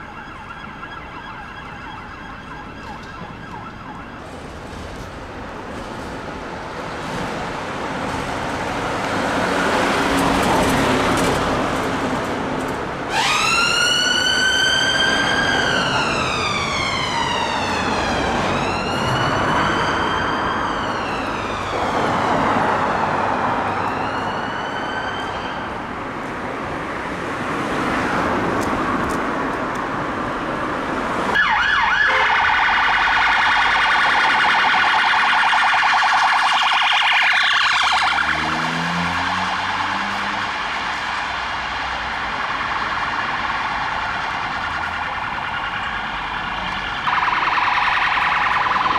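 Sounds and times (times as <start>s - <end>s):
police siren warbling: 0.0s - 4.4s, 13.1s - 25.8s, 31.4s - 48.9s
ambulance siren wailing: 0.0s - 4.5s, 13.0s - 26.0s, 31.3s - 48.9s
traffic noise: 0.0s - 48.9s.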